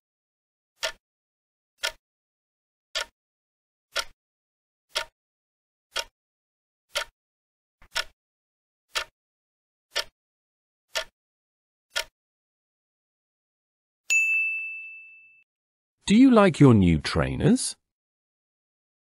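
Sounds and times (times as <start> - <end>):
timer ticks: 0.8 - 1.0, 1.8 - 2.0, 3.0 - 3.2, 3.9 - 4.2, 4.9 - 5.2, 5.9 - 6.1, 6.9 - 7.2, 7.8 - 8.2, 8.9 - 9.2, 9.9 - 10.2, 10.9 - 11.2, 11.9 - 12.2.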